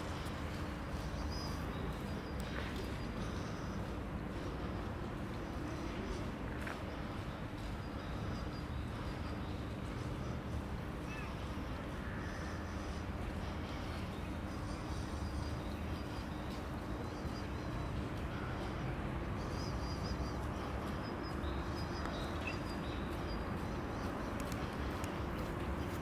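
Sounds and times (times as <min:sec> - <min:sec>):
small birds chirping: 0:19.4 - 0:26.0.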